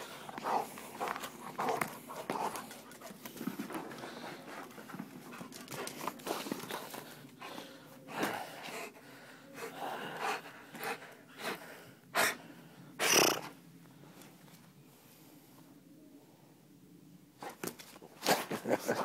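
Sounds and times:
dog huffing breaths: 0:00.0 - 0:12.5.

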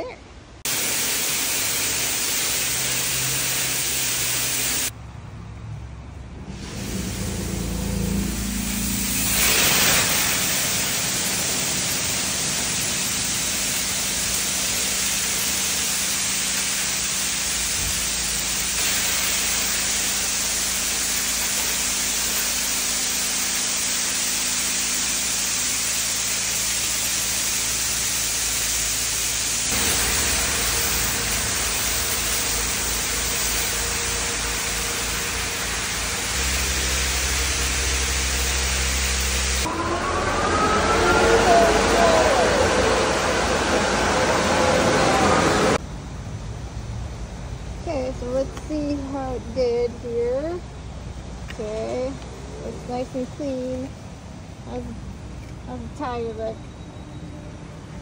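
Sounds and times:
water jets spraying: 0:00.6 - 0:04.9, 0:06.5 - 0:45.8
low rhythmic machine hum: 0:11.1 - 0:45.8.

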